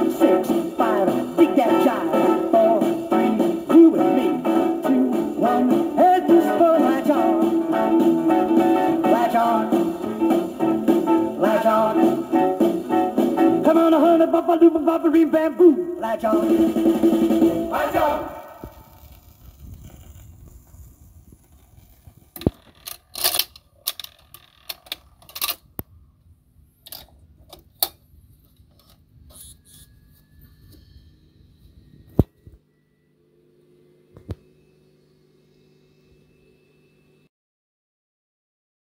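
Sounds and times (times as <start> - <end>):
record player low rumble: 14.6 - 28.6
faint steady hum: 15.6 - 37.3.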